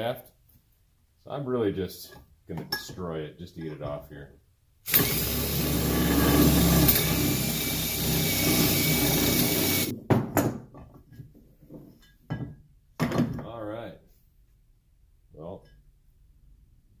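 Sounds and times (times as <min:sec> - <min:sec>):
cordless drill running under load: 0:04.9 - 0:09.9.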